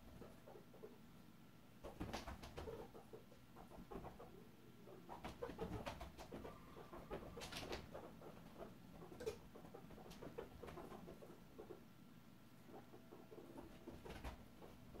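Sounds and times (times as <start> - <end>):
guinea pig squeaks: 1.8 - 11.8, 12.6 - 15.0.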